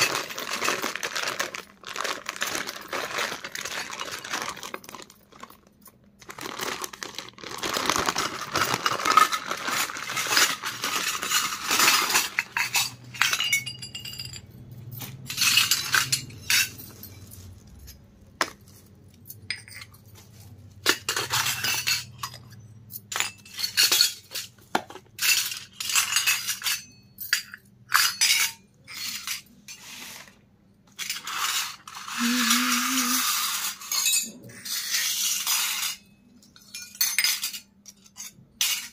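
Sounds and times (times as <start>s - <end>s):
plastic bag crinkling: 0.0s - 12.5s, 31.8s - 33.2s
metal toys clinking on concrete: 0.0s - 38.9s.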